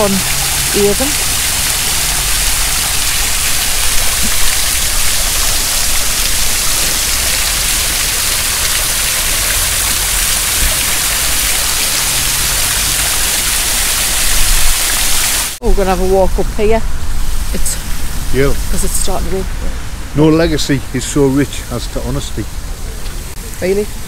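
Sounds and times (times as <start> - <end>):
fountain water splashing into basin: 0.0 - 15.6.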